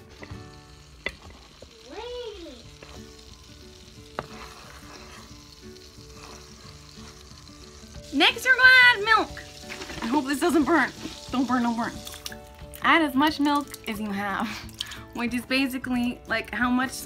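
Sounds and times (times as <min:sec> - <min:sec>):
butter sizzling in a pan: 0:00.0 - 0:17.0
spoon tapping pan: 0:00.1 - 0:01.5
wooden spoon stirring: 0:02.7 - 0:03.4, 0:04.0 - 0:12.4.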